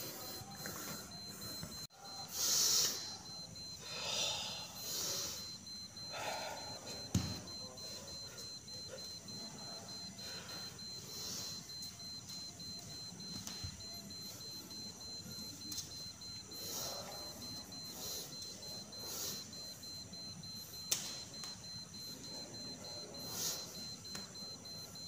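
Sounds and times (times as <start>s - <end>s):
person hissing breaths: 2.2s - 6.9s.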